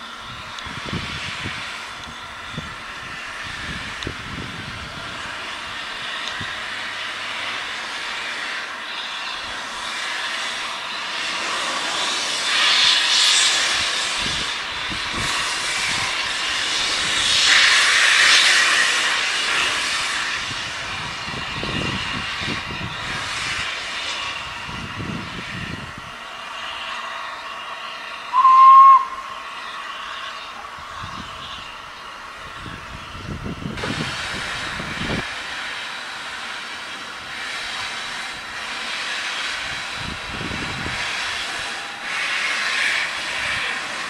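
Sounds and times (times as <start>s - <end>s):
steam locomotive hiss: 0.0s - 44.0s.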